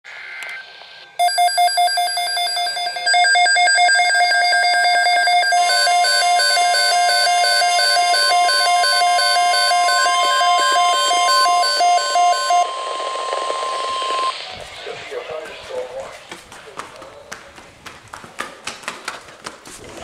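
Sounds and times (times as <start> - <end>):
rapid electronic beeping: 0.5 - 17.3
steady high tone: 0.5 - 17.3
warbling beep pattern: 1.2 - 16.0.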